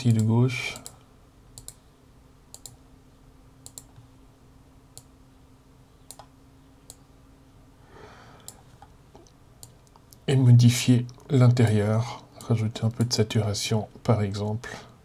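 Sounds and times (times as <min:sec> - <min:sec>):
faint steady hum: 0:00.0 - 0:15.0
computer mouse clicks: 0:00.2 - 0:01.8, 0:02.5 - 0:02.8, 0:03.6 - 0:04.1, 0:06.0 - 0:06.3, 0:08.4 - 0:10.2.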